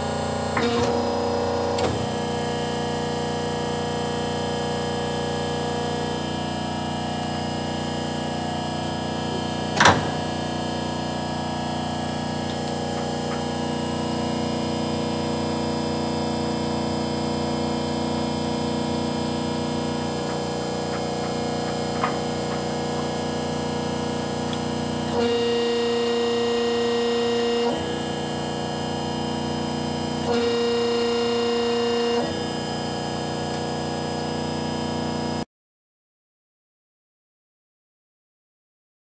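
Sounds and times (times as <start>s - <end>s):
hydraulic power unit humming: 0.0s - 35.4s.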